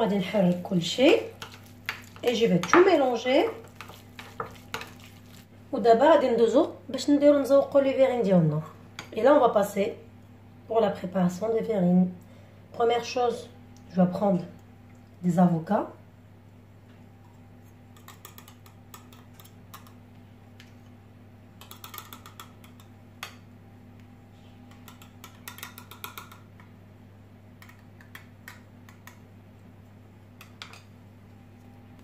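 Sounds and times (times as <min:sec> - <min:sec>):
teaspoon clicking on cup and bowl: 0:21.6 - 0:23.4, 0:24.8 - 0:26.5.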